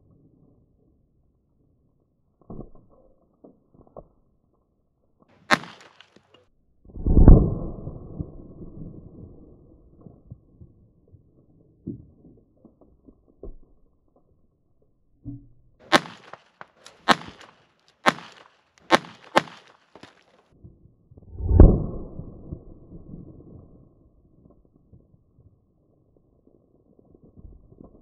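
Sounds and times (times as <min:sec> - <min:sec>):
pistol shots: 0:05.5 - 0:06.2, 0:15.8 - 0:20.1.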